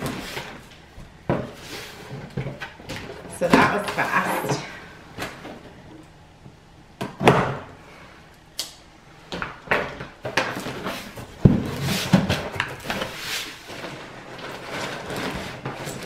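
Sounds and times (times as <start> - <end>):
cardboard scraping and rustling: 10.2 - 16.0.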